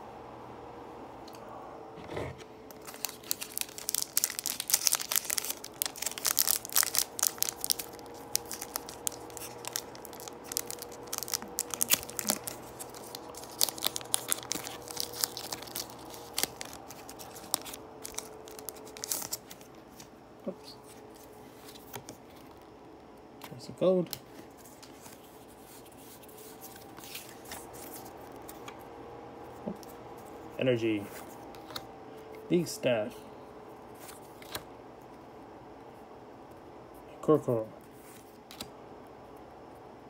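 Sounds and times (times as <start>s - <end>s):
foil wrapper crinkling and tearing: 2.7s - 20.1s.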